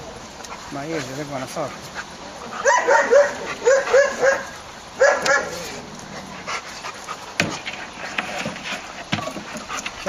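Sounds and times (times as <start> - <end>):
dog yelping barks: 2.6 - 5.7.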